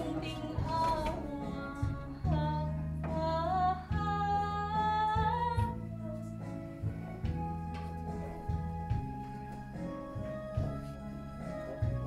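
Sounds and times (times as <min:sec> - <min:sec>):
woman singing: 0:00.0 - 0:06.5
instrumental low chords: 0:00.0 - 0:12.0.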